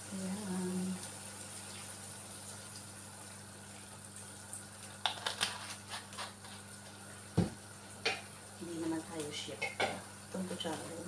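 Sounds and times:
broth simmering in a pan: 0:00.0 - 0:11.0
light clicks and knocks in pan: 0:07.4 - 0:08.3, 0:09.0 - 0:11.0.

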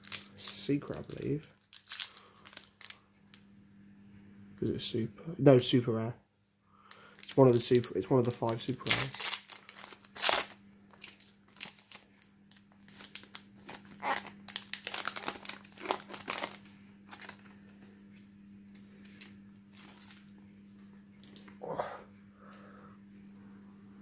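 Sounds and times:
foil wrapper crinkling: 0:00.0 - 0:03.0, 0:06.9 - 0:17.8, 0:18.9 - 0:20.4.

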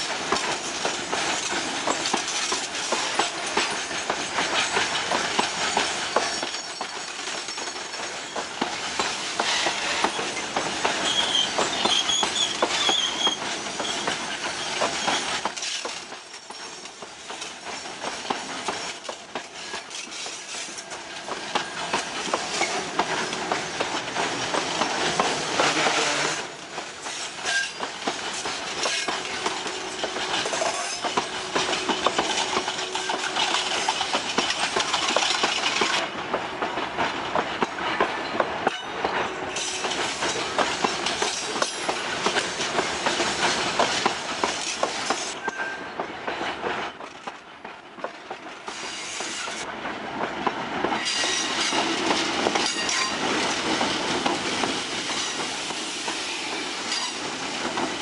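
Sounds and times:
diesel locomotives: 0:00.0 - 0:58.0
train wheels clacking over rail joints: 0:00.0 - 0:58.0
wheel squeals: 0:09.4 - 0:16.9.

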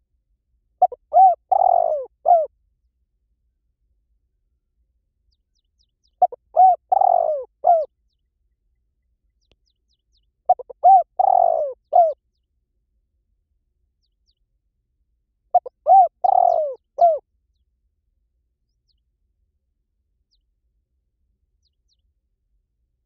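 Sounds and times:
dove cooing: 0:00.8 - 0:02.5, 0:06.2 - 0:07.9, 0:10.5 - 0:12.2, 0:15.6 - 0:17.2.

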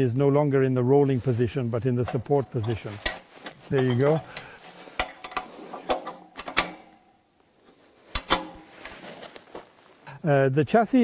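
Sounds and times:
metallic clicks and knocks: 0:02.0 - 0:07.1, 0:08.1 - 0:09.0.

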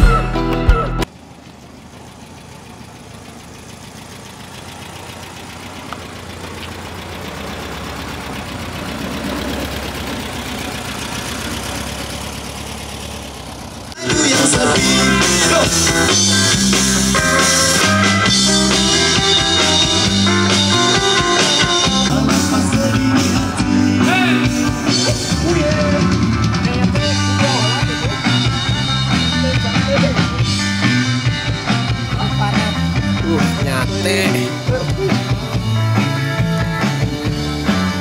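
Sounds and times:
drum kit: 0:00.0 - 0:01.0, 0:14.0 - 0:38.0
electric guitars: 0:00.0 - 0:01.0, 0:14.0 - 0:38.0
person singing: 0:14.0 - 0:16.2, 0:21.6 - 0:26.2.

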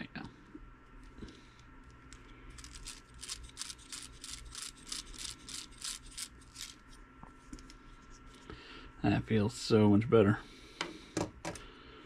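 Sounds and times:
metal gears clicking: 0:02.6 - 0:06.8.

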